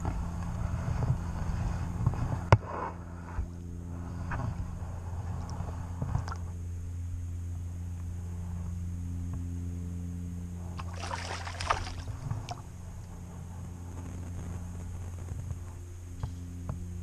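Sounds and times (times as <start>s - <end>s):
low electrical hum: 0.0s - 17.0s
water sloshing and splashing: 10.8s - 12.7s.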